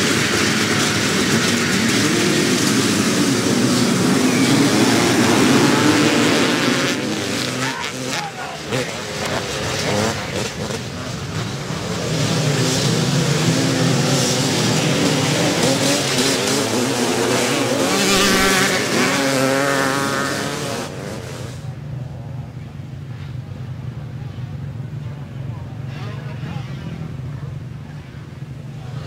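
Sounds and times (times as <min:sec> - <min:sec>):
motocross bikes revving past: 0:00.0 - 0:21.7.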